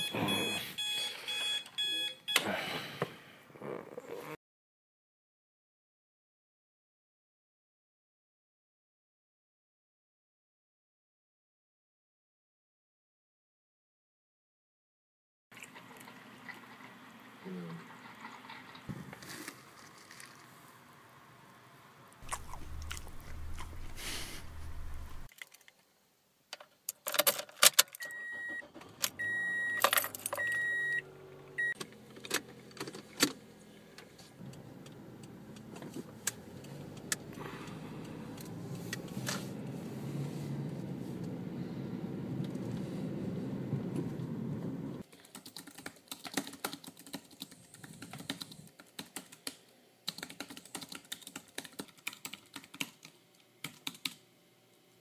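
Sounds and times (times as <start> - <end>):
car chime beeping: 0.0 - 2.4, 28.0 - 29.8, 30.4 - 31.0
car engine running: 22.2 - 25.3
fast keyboard typing: 45.1 - 54.2.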